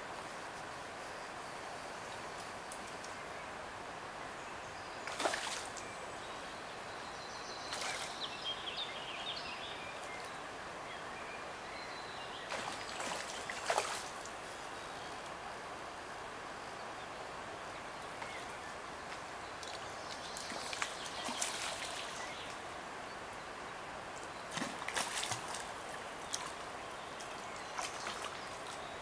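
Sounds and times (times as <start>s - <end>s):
river water rushing: 3.3s - 29.0s
faint bird chirps: 4.5s - 14.0s.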